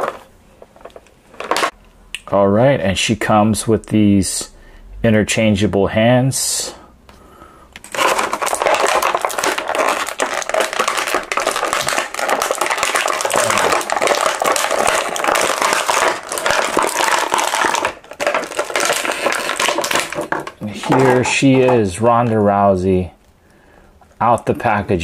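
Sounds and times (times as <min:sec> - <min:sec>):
plastic bag crinkling: 0:00.0 - 0:01.8, 0:07.8 - 0:22.0.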